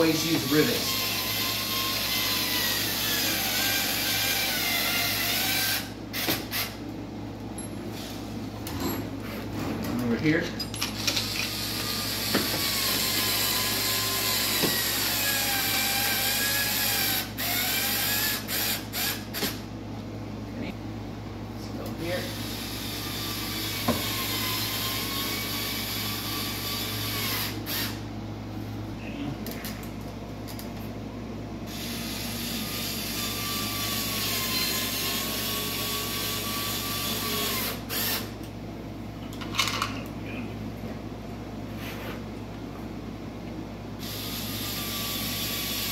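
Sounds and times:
cordless screw gun whining: 0:11.0 - 0:19.6, 0:22.4 - 0:28.0, 0:31.7 - 0:38.3, 0:44.0 - 0:45.9.

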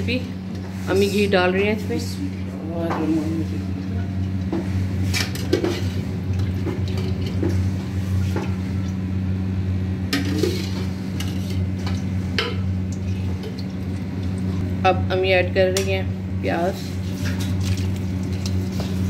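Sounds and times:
steady low hum: 0:00.0 - 0:19.0.

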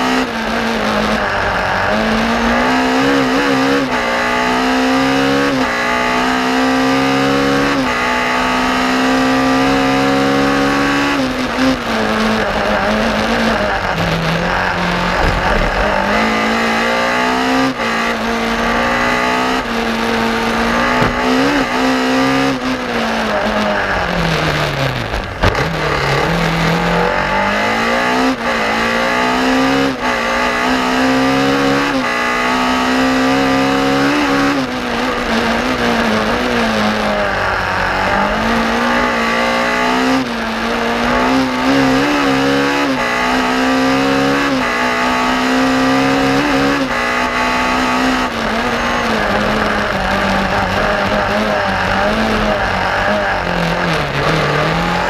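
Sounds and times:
car engine revving hard: 0:00.0 - 0:55.0.

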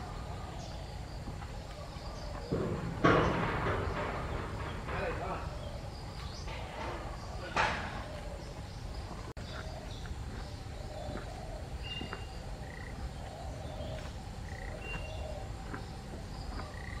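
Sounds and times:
frogs chirping: 0:00.0 - 0:17.0.

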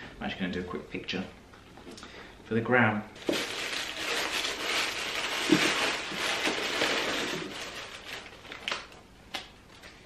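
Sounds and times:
paper and card packaging rustling: 0:03.2 - 0:09.9.

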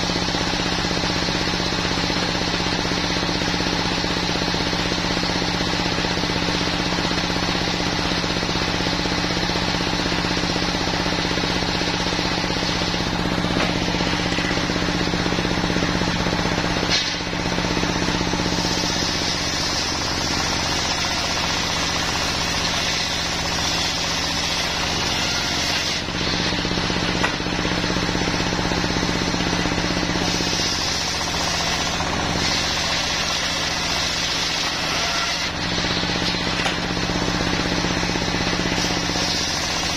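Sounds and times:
diesel engine running: 0:00.0 - 0:39.9
saw blade cutting log: 0:00.0 - 0:39.9.

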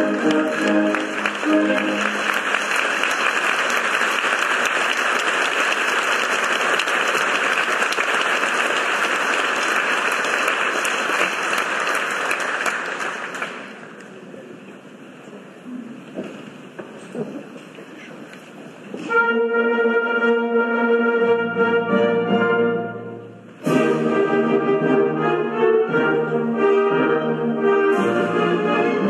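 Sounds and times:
orchestra playing: 0:00.0 - 0:05.0, 0:19.0 - 0:29.0
audience applauding: 0:00.0 - 0:14.3.

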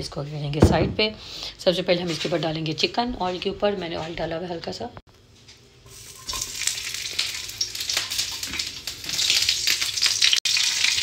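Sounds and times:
chicken sizzling in hot oil: 0:05.8 - 0:11.0.

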